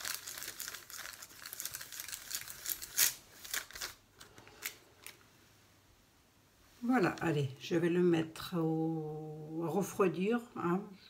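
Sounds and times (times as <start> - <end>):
parchment paper crinkling: 0.0 - 5.3.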